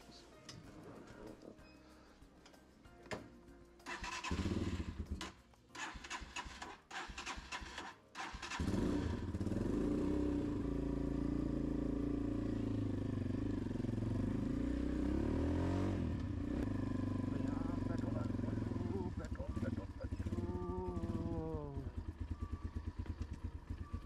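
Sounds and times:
dirt bike engine cranking: 3.8 - 9.5
dirt bike engine idling: 8.4 - 14.8, 16.2 - 24.0.

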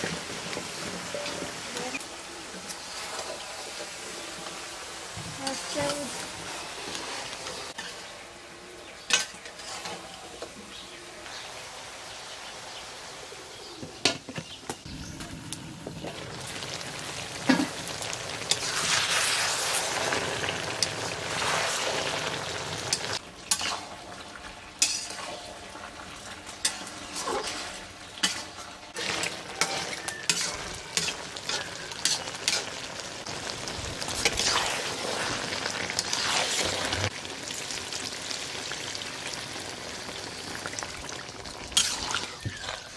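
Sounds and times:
curry sizzling in an iron pan: 0.0 - 42.9
metal spatula clinking and scraping: 9.0 - 10.2, 23.5 - 24.0, 24.8 - 25.6, 26.5 - 32.8.

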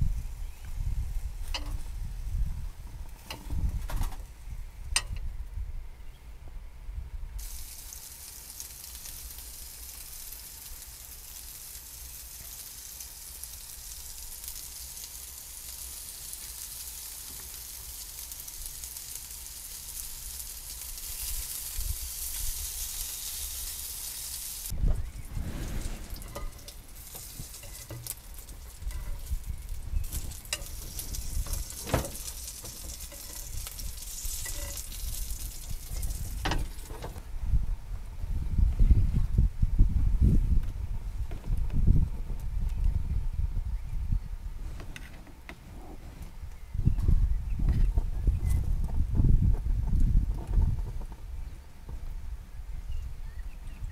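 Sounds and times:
meat sizzling on grill pan: 7.4 - 24.8, 26.2 - 37.0
pan and utensils clicking: 30.1 - 37.1.

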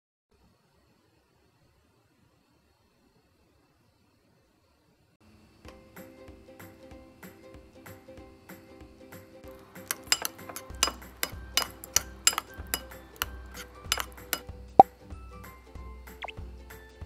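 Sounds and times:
background music: 5.7 - 17.0
utensil clinking against dish: 9.5 - 14.5.

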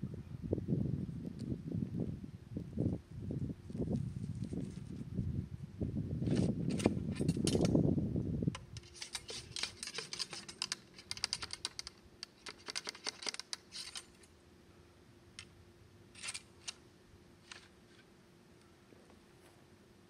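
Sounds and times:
ramrod tapping and scraping in bore: 8.6 - 14.2.

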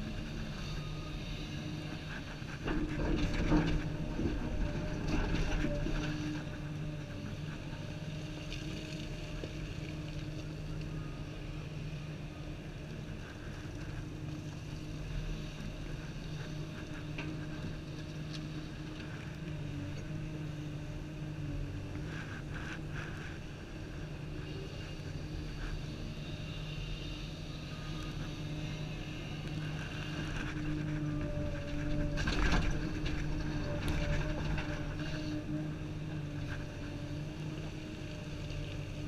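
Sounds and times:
excavator engine and hydraulics: 0.0 - 39.0.

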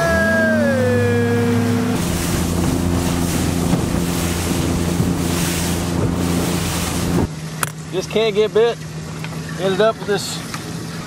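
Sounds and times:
low hum: 0.0 - 7.8
boat engine drone: 0.0 - 11.0
rush of wind and water: 0.0 - 11.0.

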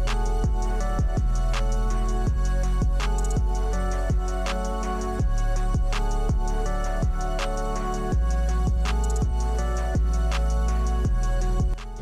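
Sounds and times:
low drum thumps: 0.0 - 1.4, 2.3 - 4.3, 5.2 - 7.2, 8.1 - 10.3
background music: 0.0 - 12.0.

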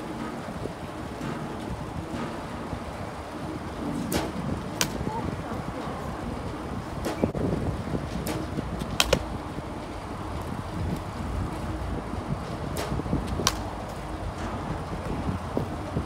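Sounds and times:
low wind rumble on microphone: 0.0 - 16.0
softball striking a bat: 8.2 - 9.2.

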